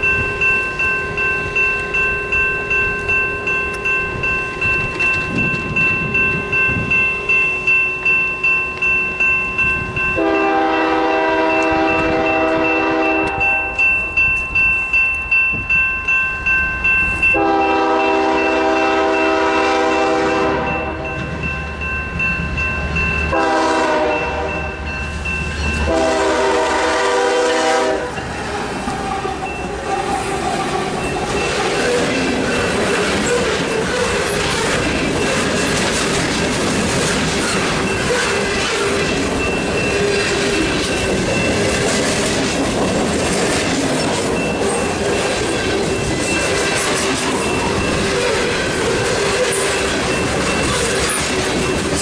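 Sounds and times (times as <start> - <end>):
electronic crossing bell dinging: 0.0 - 26.6, 37.4 - 52.0
train wheels rumbling on rails: 0.0 - 52.0
locomotive air horn blasts: 10.2 - 13.8, 17.4 - 21.0, 23.3 - 24.7, 25.8 - 28.2.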